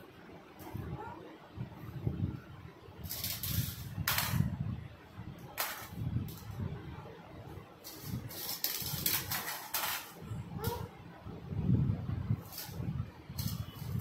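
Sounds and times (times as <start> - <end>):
mesh sieve rattling on tile: 3.0 - 4.5, 5.5 - 6.6, 7.8 - 10.2.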